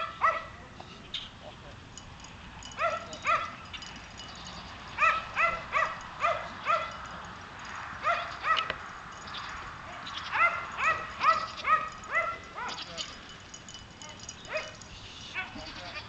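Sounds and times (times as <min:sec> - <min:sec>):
dog barking: 0:00.0 - 0:00.6, 0:02.8 - 0:03.6, 0:05.0 - 0:07.0, 0:08.0 - 0:08.8, 0:09.9 - 0:12.8, 0:14.5 - 0:14.8.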